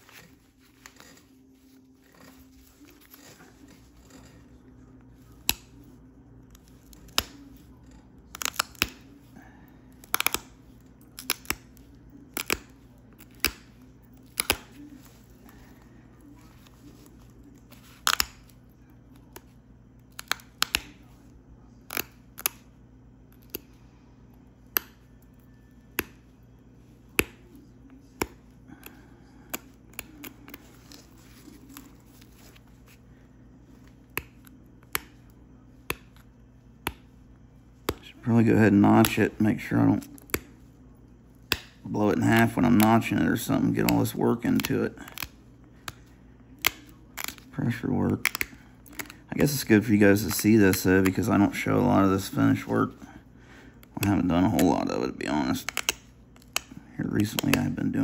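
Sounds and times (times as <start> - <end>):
stone flakes snapping clicks: 8.3 - 9.0, 20.1 - 21.0, 46.6 - 47.4, 55.6 - 56.7.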